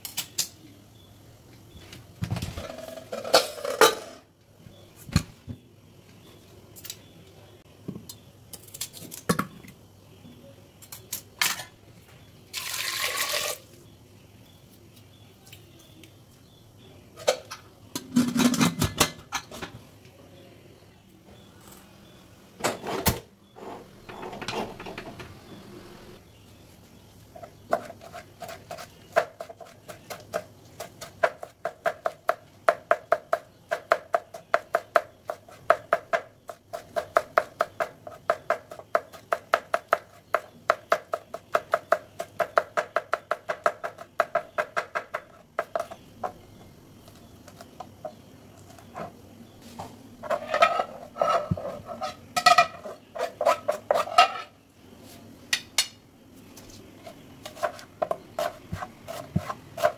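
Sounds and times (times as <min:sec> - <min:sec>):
knife scraping on ceramic plate: 0:50.2 - 0:54.5.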